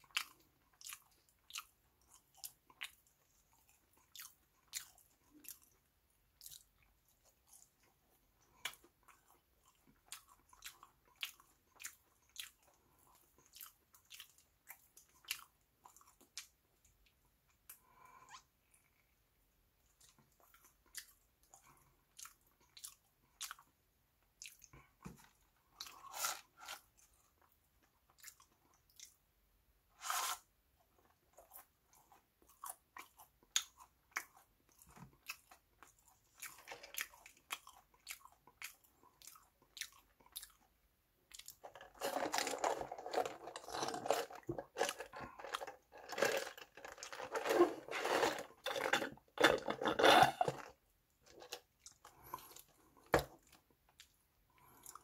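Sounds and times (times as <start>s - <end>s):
chewing crunchy fries: 0.0s - 19.1s, 19.9s - 29.3s, 30.9s - 55.0s
paper box rustling: 46.0s - 48.9s.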